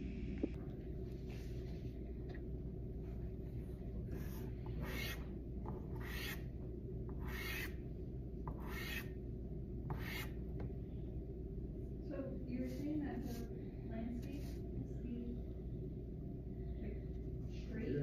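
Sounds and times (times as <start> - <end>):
low room hum: 0.0 - 18.0
pastel scratching on paper: 4.1 - 6.5, 7.1 - 7.8, 8.5 - 9.1, 9.9 - 10.4.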